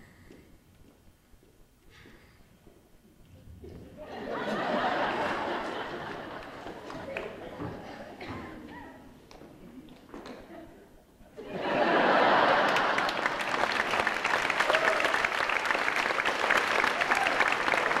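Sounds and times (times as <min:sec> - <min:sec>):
audience applause: 0:04.3 - 0:07.7, 0:11.6 - 0:18.0.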